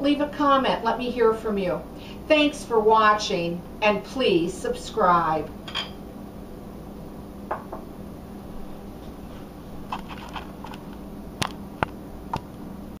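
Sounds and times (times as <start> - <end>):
low room hum: 0.0 - 13.0
glass bowl knocking on stone: 7.5 - 7.8.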